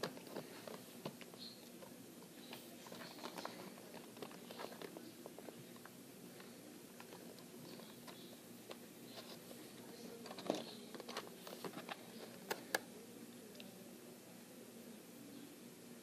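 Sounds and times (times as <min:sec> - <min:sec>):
plastic packaging crinkling: 0:02.4 - 0:09.6.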